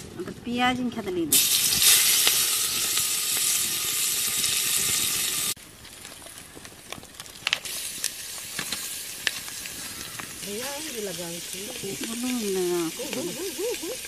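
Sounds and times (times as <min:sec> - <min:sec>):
onions sizzling in hot oil: 0:01.3 - 0:05.6, 0:07.4 - 0:14.0.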